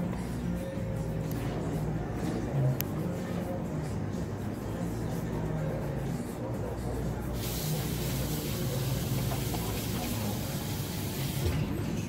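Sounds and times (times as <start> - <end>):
steady hiss: 7.4 - 9.6.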